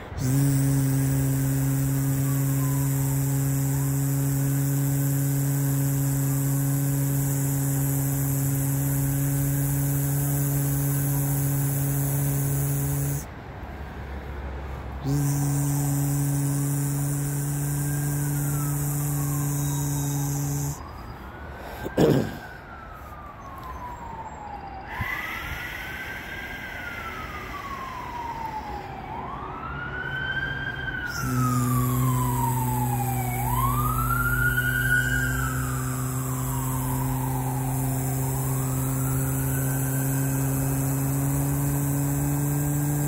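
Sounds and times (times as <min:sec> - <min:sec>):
man humming: 0:00.0 - 0:13.3, 0:15.0 - 0:20.8, 0:21.8 - 0:22.4, 0:31.1 - 0:33.8, 0:34.4 - 0:43.0
emergency vehicle siren wailing: 0:17.9 - 0:40.8.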